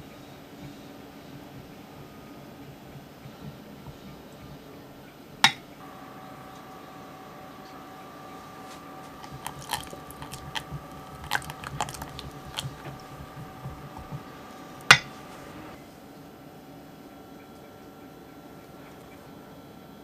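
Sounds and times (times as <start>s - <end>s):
whisk stirring thick mixture: 5.8s - 15.8s
whisk clicking on glass: 9.0s - 15.4s
whisk clinking against jug: 9.1s - 15.5s.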